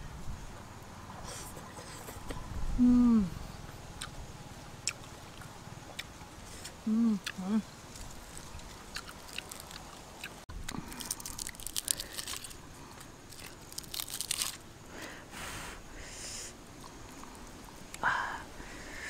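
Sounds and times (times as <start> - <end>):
grilled fish skin crackling: 7.8 - 14.7.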